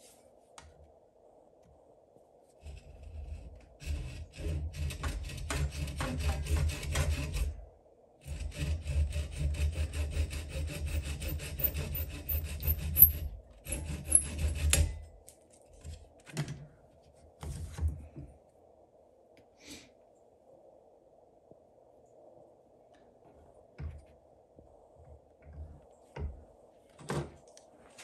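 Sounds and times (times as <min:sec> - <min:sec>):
hand saw cutting wood: 0:02.7 - 0:07.6, 0:08.2 - 0:15.0.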